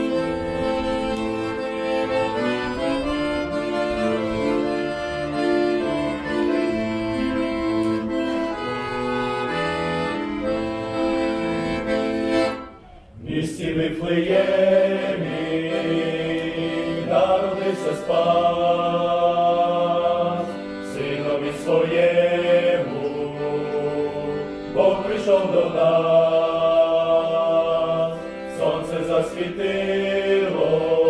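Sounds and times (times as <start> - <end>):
men's vocal group singing carol: 13.2 - 31.0.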